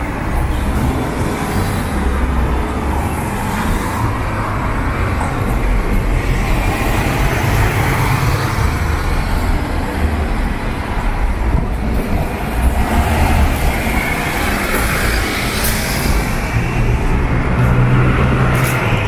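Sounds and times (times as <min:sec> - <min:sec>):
cars passing: 0:00.0 - 0:19.0.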